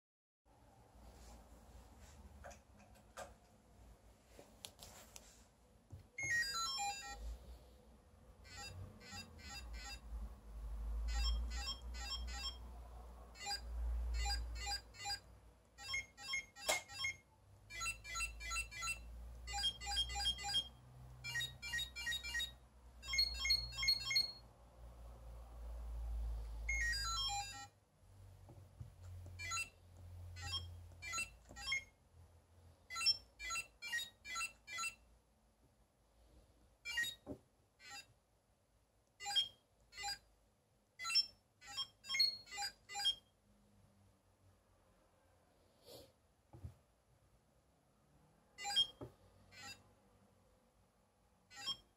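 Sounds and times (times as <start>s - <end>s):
short electronic beeps: 15.8s - 24.4s, 36.9s - 37.3s, 48.6s - 49.0s, 51.6s - 51.9s.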